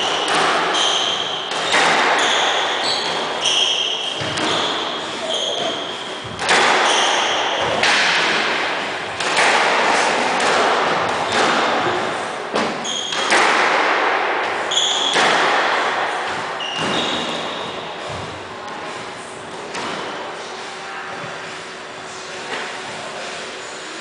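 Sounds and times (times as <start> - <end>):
shoes squeaking on wooden floor: 0.0 - 7.8, 16.5 - 18.2
squash ball cracking off racquets: 0.1 - 3.4, 6.3 - 12.0, 12.6 - 17.4.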